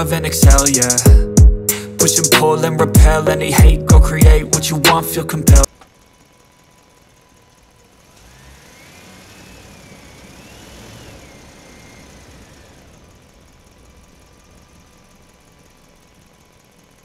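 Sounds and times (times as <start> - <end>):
vehicle engine passing by: 8.1 - 13.8.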